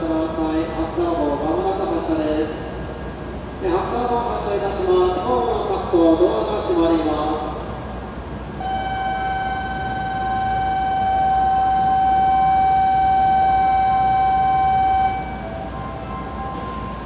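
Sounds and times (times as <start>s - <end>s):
low station hum: 0.0s - 17.0s
electronic warning tone: 8.6s - 17.0s.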